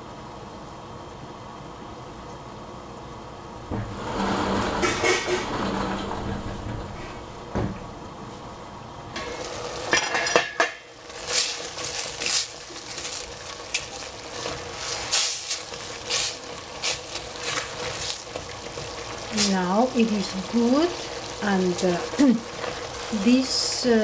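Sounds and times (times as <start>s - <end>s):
spatula scraping a pan: 3.9s - 6.2s
mushrooms sizzling in a pan: 9.2s - 24.0s.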